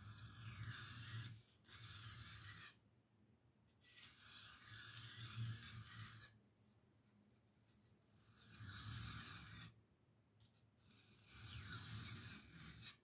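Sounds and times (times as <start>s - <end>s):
knife scraping on sharpening hone: 0.0s - 2.8s, 3.8s - 6.4s, 8.2s - 9.7s, 10.9s - 13.0s.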